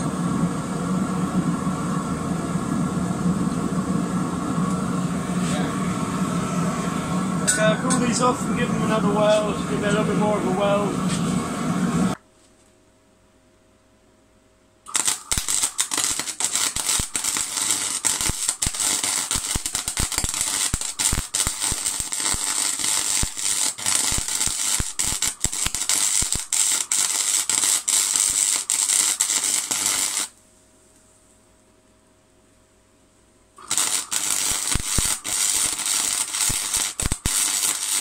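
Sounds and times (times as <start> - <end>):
welding arc crackling and popping: 14.9 - 30.4, 33.6 - 38.0.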